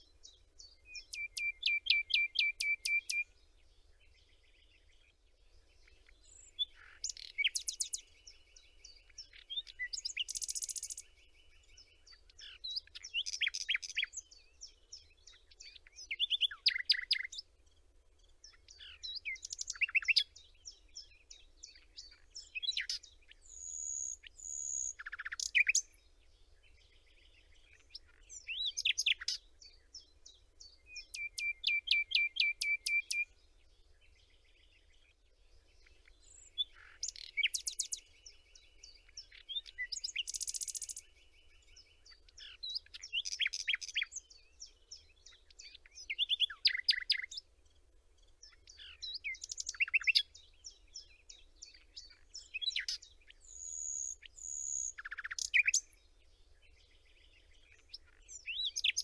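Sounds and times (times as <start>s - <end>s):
songbirds chirping and trilling: 0.0s - 59.0s.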